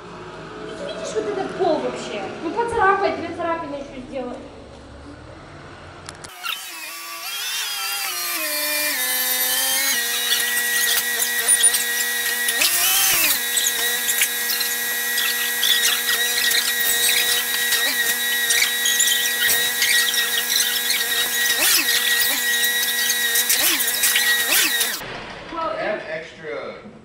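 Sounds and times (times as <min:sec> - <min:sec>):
forklift engine whining: 0:04.6 - 0:25.0.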